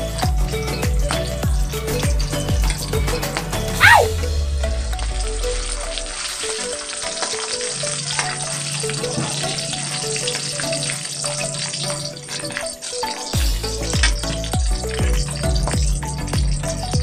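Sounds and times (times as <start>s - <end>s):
meat sizzling in hot oil: 5.0s - 17.0s.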